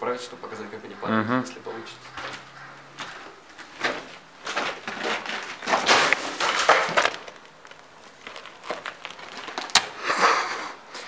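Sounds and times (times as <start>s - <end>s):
concrete debris crunching and clattering: 3.0s - 10.0s.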